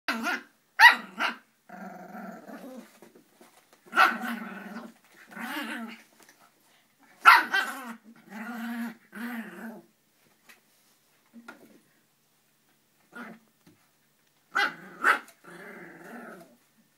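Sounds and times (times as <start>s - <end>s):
puppy growling: 0.1s - 3.0s, 4.0s - 6.1s, 7.5s - 9.9s, 14.6s - 16.6s.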